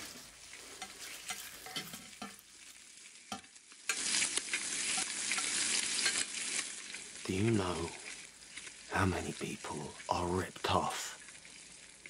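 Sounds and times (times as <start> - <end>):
bacon sizzling in a skillet: 0.0 - 12.0.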